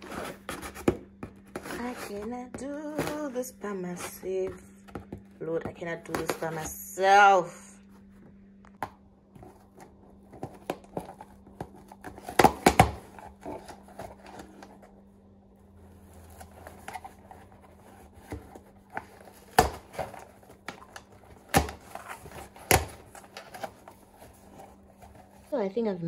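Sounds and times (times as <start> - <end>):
cardboard rustling and scraping: 0.0 - 7.3, 9.3 - 25.6
cardboard tearing cracks: 18.3 - 23.8
cardboard flaps snapping: 19.2 - 23.7.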